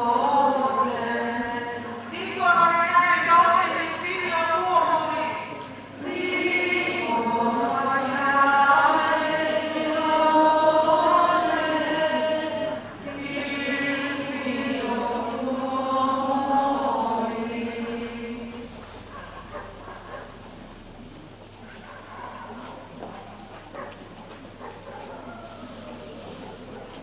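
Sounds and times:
group singing religious chant: 0:00.0 - 0:20.5.

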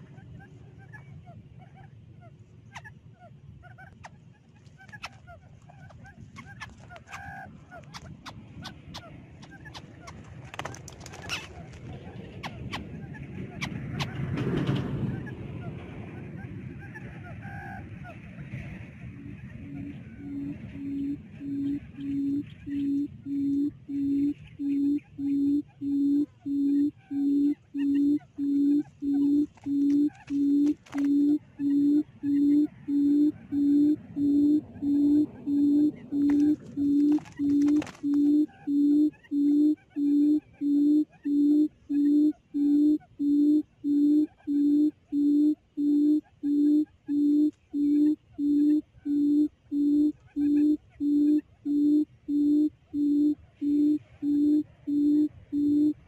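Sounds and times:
quail wings fluttering: 0:03.8 - 0:22.8, 0:28.8 - 0:32.8, 0:34.0 - 0:39.2
bird low hooting call: 0:11.1 - 0:56.0.

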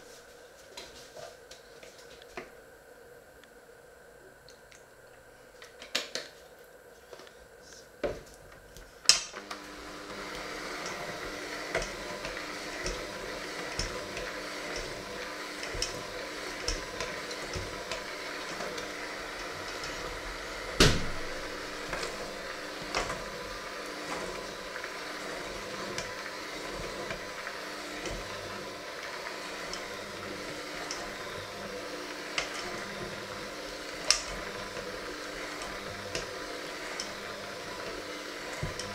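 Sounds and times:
electric hand mixer motor running: 0:09.3 - 0:38.9.

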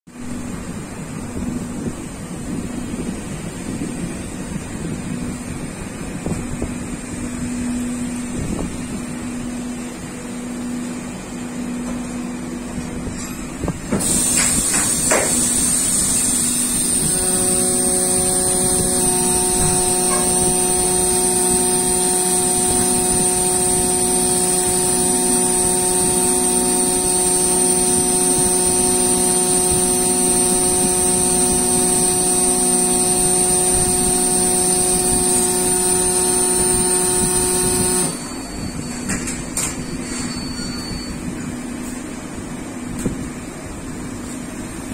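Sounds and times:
multi-tone machine whine: 0:00.1 - 0:44.4
machine noise with high hiss: 0:00.1 - 0:44.9
machine knocks: 0:13.9 - 0:15.4.

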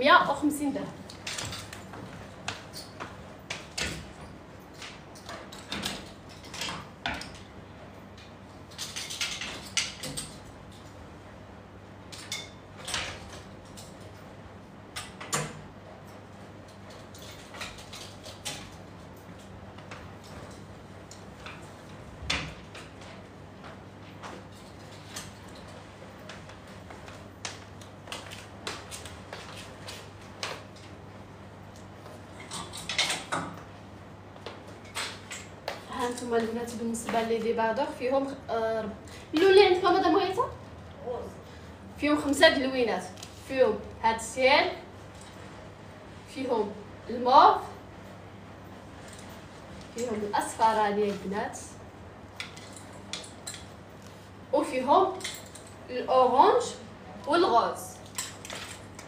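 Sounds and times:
hangers clicking and clattering: 0:01.0 - 0:11.0, 0:12.1 - 0:14.3, 0:14.9 - 0:31.0, 0:31.6 - 0:33.7, 0:34.4 - 0:37.5, 0:45.0 - 0:45.7, 0:49.0 - 0:51.2, 0:52.2 - 0:54.3, 0:54.9 - 0:55.9, 0:57.3 - 0:59.0.

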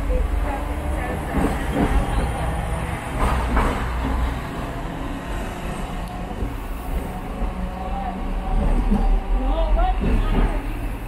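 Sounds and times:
tram rattle: 0:00.0 - 0:11.0
tram rumble and hum: 0:00.0 - 0:11.0.

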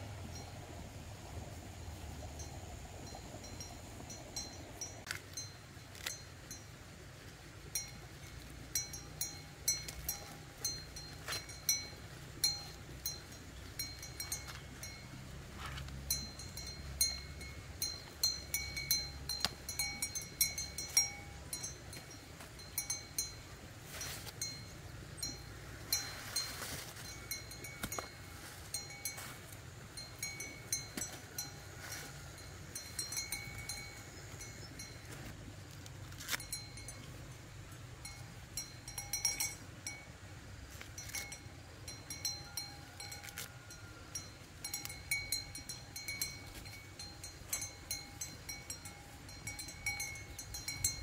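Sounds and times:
small bell-like clink: 0:07.7 - 0:35.3, 0:36.2 - 0:40.1, 0:40.8 - 0:51.0
corn husks crackling and tearing: 0:35.1 - 0:36.8, 0:43.2 - 0:43.6.

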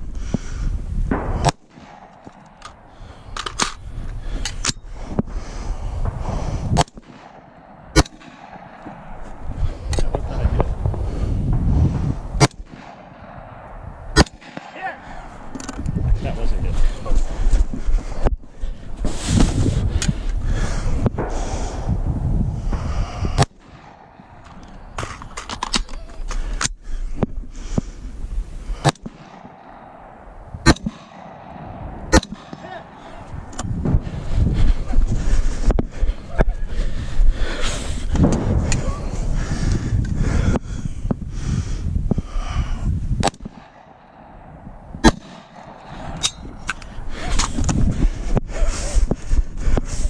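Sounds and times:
gunshots: 0:01.1 - 0:03.9, 0:05.9 - 0:09.5, 0:11.5 - 0:15.6, 0:22.7 - 0:26.1, 0:28.8 - 0:35.1, 0:43.2 - 0:47.8
microphone noise rush: 0:02.8 - 0:07.2, 0:08.6 - 0:25.4, 0:29.8 - 0:50.0.

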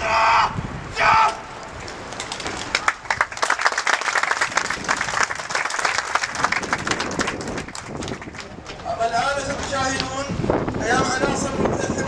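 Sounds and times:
crowd applauding: 0:02.3 - 0:08.7.

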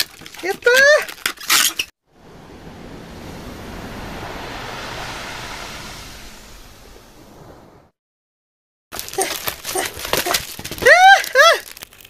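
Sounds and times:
surf washing over pebbles: 0:02.1 - 0:07.9.

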